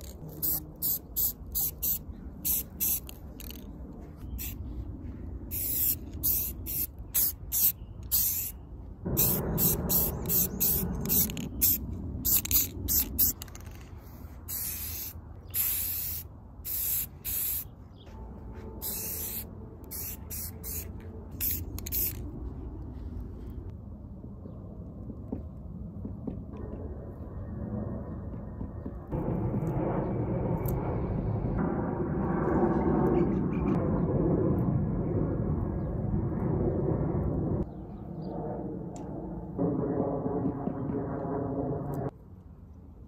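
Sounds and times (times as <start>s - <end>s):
spray can hissing: 0.0s - 3.6s, 5.5s - 13.8s, 14.5s - 17.7s, 18.8s - 22.2s.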